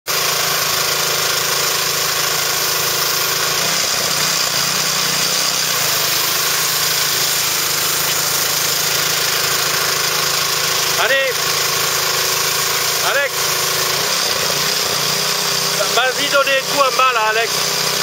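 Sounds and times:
pressure washer engine running: 0:00.1 - 0:18.0
water jet spraying onto tarps: 0:00.1 - 0:18.0.

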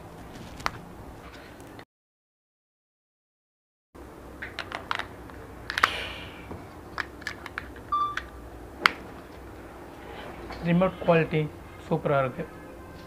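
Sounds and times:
short beep: 0:07.9 - 0:08.2.

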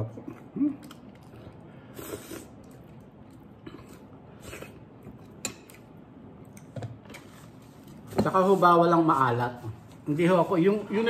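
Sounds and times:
man chewing food: 0:00.1 - 0:08.1.

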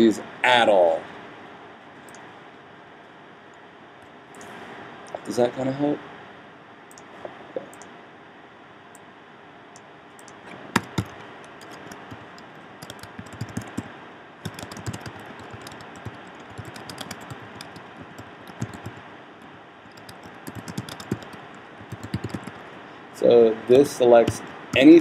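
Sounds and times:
computer keyboard typing: 0:10.2 - 0:19.1, 0:19.9 - 0:22.8, 0:24.2 - 0:25.0.

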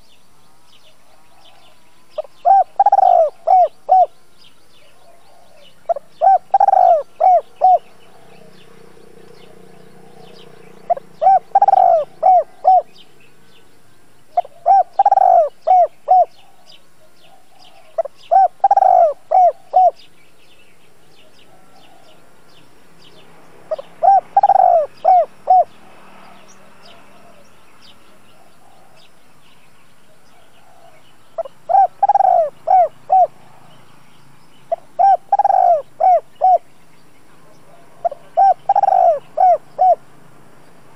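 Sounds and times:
dove cooing: 0:01.1 - 0:04.2, 0:04.8 - 0:13.0, 0:14.3 - 0:20.1, 0:21.2 - 0:22.3, 0:23.7 - 0:27.5, 0:30.1 - 0:33.8, 0:34.7 - 0:36.7, 0:37.4 - 0:40.1.

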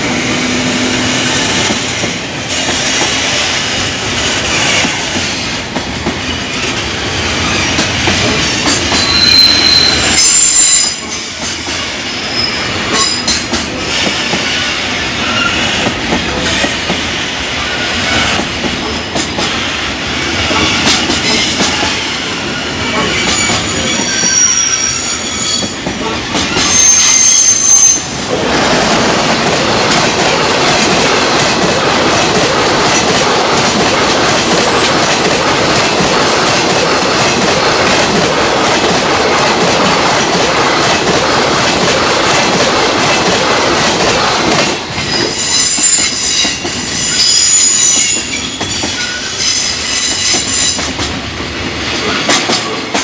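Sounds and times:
high-pitched wheel squeals: 0:08.9 - 0:11.1, 0:23.1 - 0:25.8, 0:26.5 - 0:28.2, 0:45.1 - 0:50.8.

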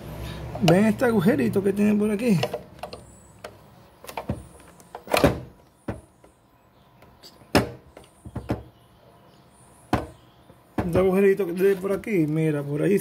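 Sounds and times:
hands knocking on plastic: 0:10.8 - 0:11.2.

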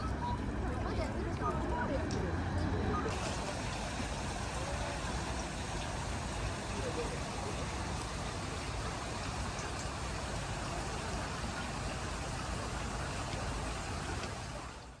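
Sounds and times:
fountain spraying hiss: 0:03.1 - 0:15.0.

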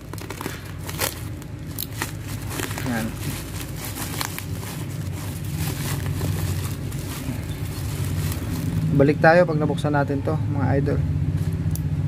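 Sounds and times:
bubble wrap crinkling: 0:00.0 - 0:09.3
steady low rumble: 0:00.0 - 0:12.0.

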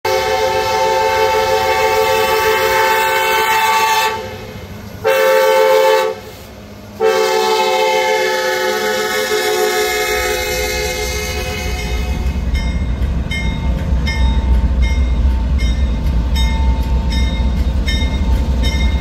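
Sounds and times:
locomotive air horn blasts: 0:00.0 - 0:12.4
train rumble: 0:00.1 - 0:19.0.

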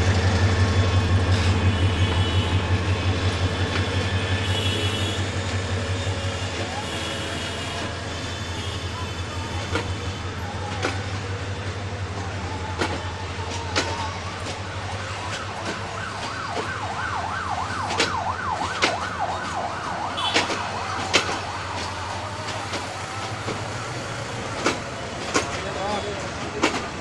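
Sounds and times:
train low hum: 0:00.0 - 0:27.0
wheels clicking over rails: 0:09.0 - 0:27.0
fast warbling siren: 0:14.0 - 0:22.4.

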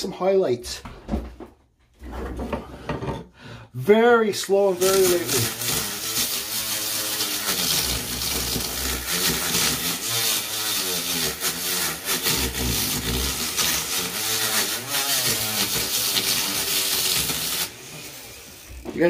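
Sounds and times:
rotary tool sanding wood: 0:04.4 - 0:19.0.

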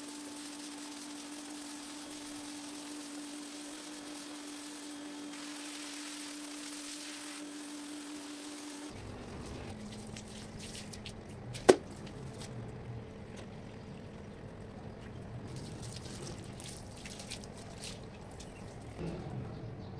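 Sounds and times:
pressure washer spray hissing: 0:00.0 - 0:08.9
wet mat squishing and dripping: 0:09.7 - 0:12.7, 0:15.4 - 0:19.0.

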